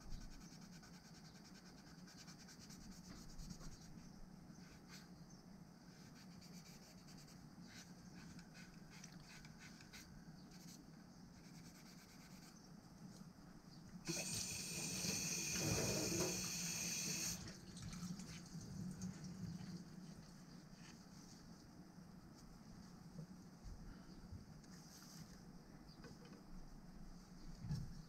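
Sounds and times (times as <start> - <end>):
water tap running: 14.1 - 18.0.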